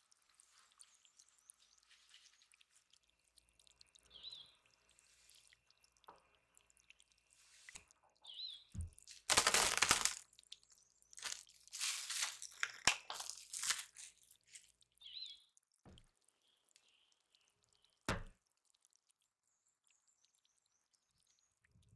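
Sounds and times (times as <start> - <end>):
plastic wrap crinkling: 9.0 - 10.4, 11.1 - 14.7
dough thud on wooden board: 18.1 - 18.3.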